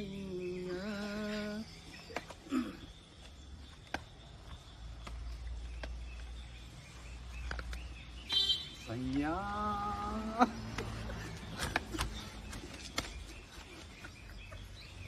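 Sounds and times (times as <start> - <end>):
person humming: 0.0 - 1.7.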